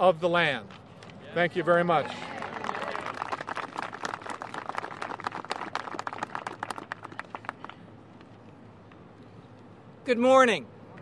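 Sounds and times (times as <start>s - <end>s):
crowd applauding: 2.0s - 7.8s.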